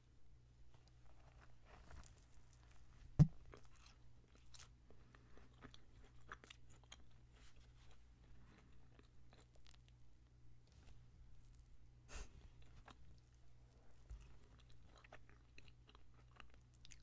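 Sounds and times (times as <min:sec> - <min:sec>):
chewing clicks and smacks: 0:14.4 - 0:17.0.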